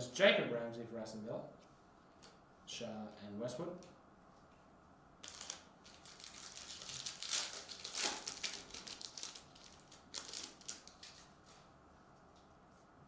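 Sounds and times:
foil wrapper crinkling and tearing: 5.2s - 11.3s.

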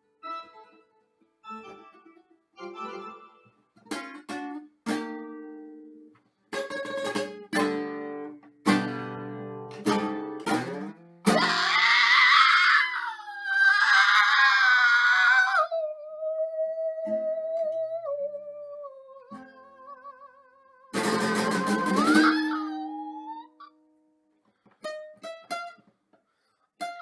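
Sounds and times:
acoustic guitar strumming chords: 1.4s - 11.5s, 21.0s - 22.6s
person singing: 15.4s - 23.6s.

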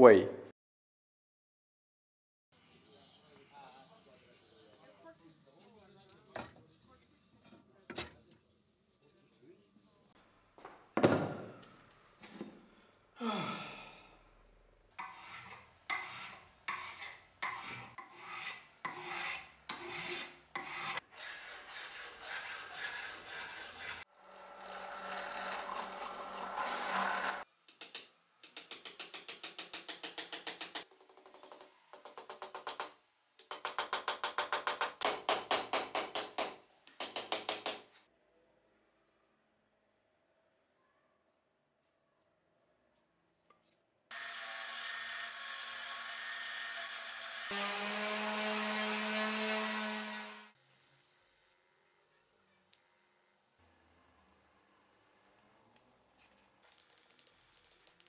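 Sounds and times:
rasp scraping wood: 15.0s - 27.4s
drill press boring wood: 24.2s - 27.4s.

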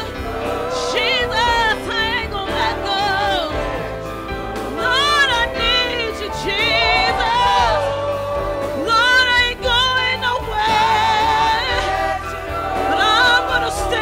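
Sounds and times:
band accompaniment: 0.0s - 14.0s
singers holding long notes: 0.0s - 14.0s.

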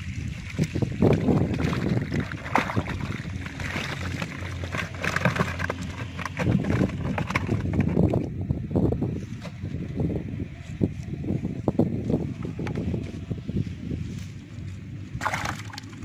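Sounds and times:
water splashing onto grass: 0.0s - 4.7s, 15.2s - 16.0s
fish flopping on wet grass: 15.2s - 16.0s.

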